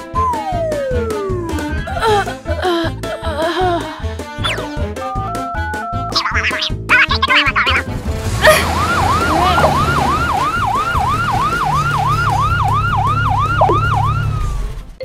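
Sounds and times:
ambulance siren yelp: 0:00.0 - 0:01.8, 0:08.4 - 0:14.7.

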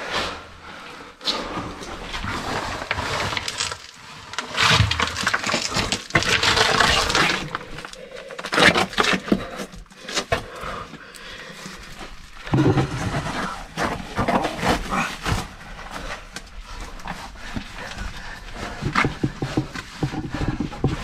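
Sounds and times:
footsteps crunching on rubble: 0:01.4 - 0:10.6.

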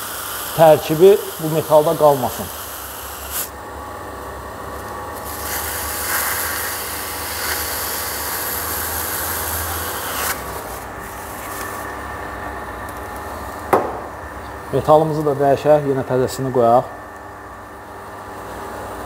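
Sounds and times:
loud hiss: 0:00.0 - 0:03.5.

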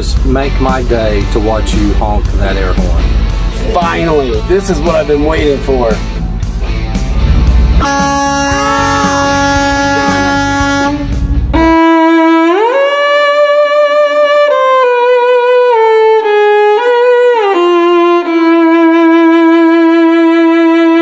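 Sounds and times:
solo bowed string melody: 0:07.8 - 0:21.0.

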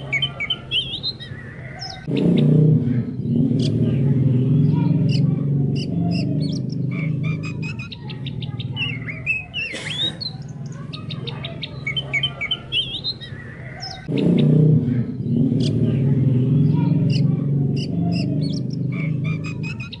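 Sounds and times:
songbird singing: 0:00.0 - 0:20.0
low pulsing drone: 0:02.0 - 0:09.2, 0:14.0 - 0:20.0.

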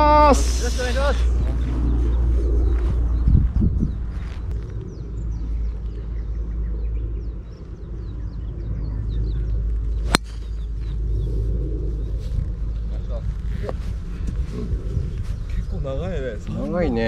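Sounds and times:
birds chirping: 0:00.0 - 0:17.0
low steady rumble: 0:00.0 - 0:17.0
golf ball struck off tee: 0:10.0 - 0:10.4.

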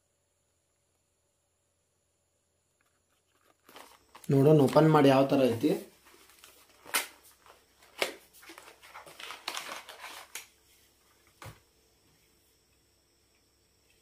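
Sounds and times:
packaging rustling: 0:02.8 - 0:05.3, 0:05.9 - 0:10.5
cardboard flap snapping: 0:06.4 - 0:07.2, 0:07.9 - 0:10.5.

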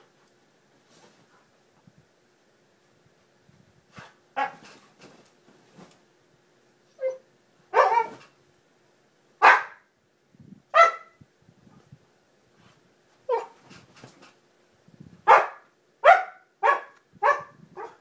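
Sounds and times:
dog barking: 0:04.4 - 0:04.6, 0:07.7 - 0:08.2, 0:09.4 - 0:09.9, 0:10.8 - 0:11.2, 0:15.3 - 0:18.0
dog yelp: 0:07.0 - 0:08.3, 0:10.8 - 0:11.1, 0:15.3 - 0:18.0.

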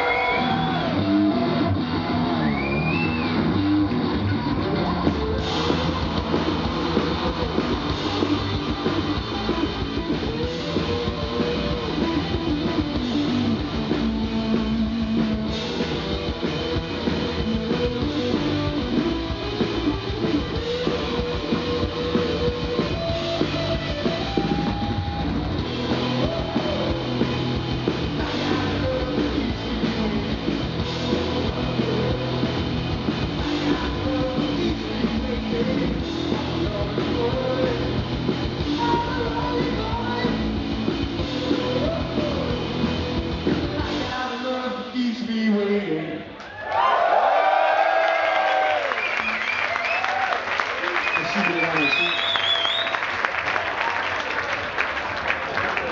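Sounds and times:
punk rock band playing: 0:00.0 - 0:44.7.

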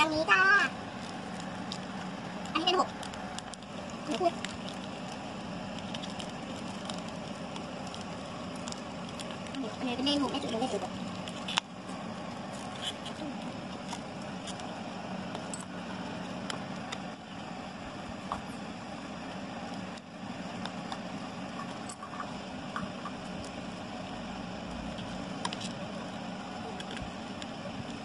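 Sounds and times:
low hum: 0:00.0 - 0:28.0
paper pieces ticking and tapping: 0:00.3 - 0:15.6.

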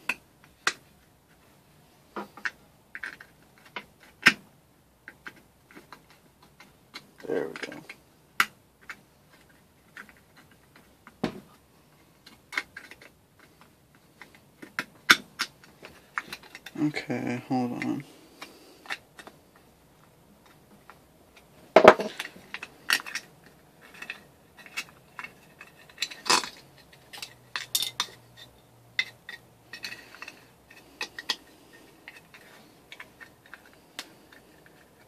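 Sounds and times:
metal parts and tools clinking: 0:21.8 - 0:35.0.

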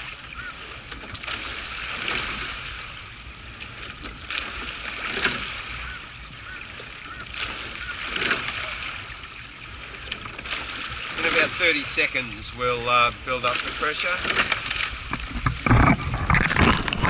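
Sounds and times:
oar blades splashing: 0:00.0 - 0:17.0
water rushing along hull: 0:00.0 - 0:17.0
oars knocking in oarlocks: 0:00.4 - 0:02.8, 0:03.5 - 0:09.2, 0:13.2 - 0:17.0.

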